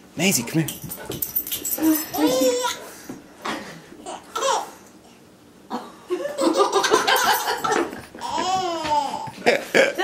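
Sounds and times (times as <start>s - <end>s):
person laughing: 9.4s - 10.0s.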